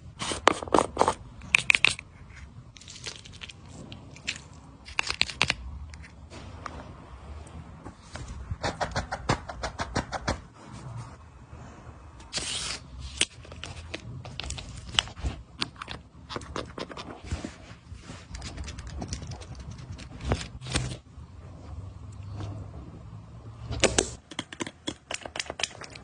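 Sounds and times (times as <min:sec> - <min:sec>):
skincare tools clicking and tapping: 0:24.3 - 0:26.0.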